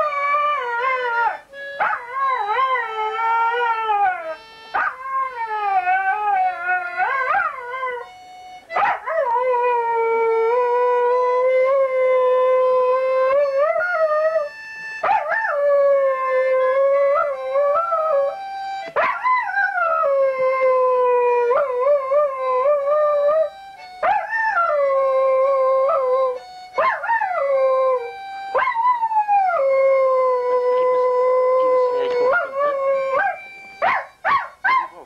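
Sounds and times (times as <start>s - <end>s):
dog howling: 0.0s - 35.0s
harmonica long held notes: 0.0s - 35.0s.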